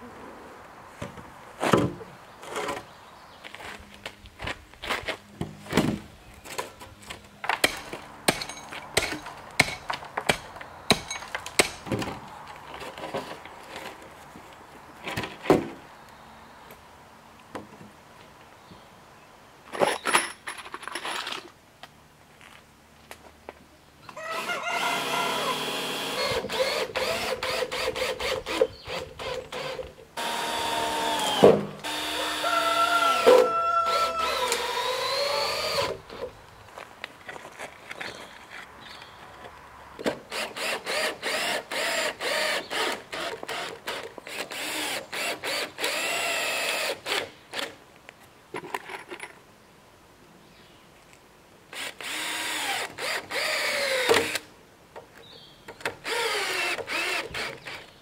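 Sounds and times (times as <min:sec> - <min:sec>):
power drill running: 0:24.9 - 0:28.6, 0:29.2 - 0:36.0, 0:51.8 - 0:54.1, 0:56.0 - 0:57.8.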